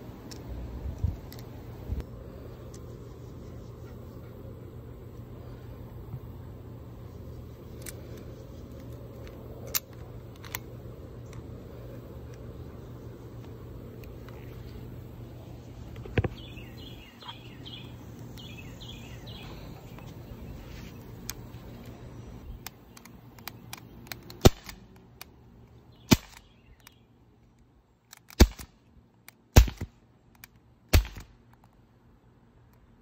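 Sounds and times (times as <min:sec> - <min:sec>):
air pistol shots: 0:24.4 - 0:24.8, 0:26.0 - 0:26.5, 0:28.3 - 0:28.7, 0:29.5 - 0:29.9, 0:30.9 - 0:31.4.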